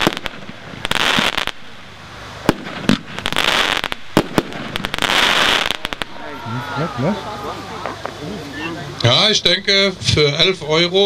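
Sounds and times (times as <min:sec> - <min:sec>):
firework bangs: 0:00.0 - 0:08.4
crackling hiss of stars: 0:00.0 - 0:11.0.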